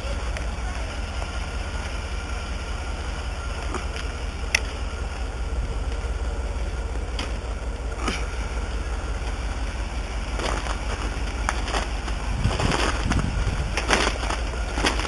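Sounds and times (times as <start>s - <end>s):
wind buffeting microphone: 10.2s - 15.0s.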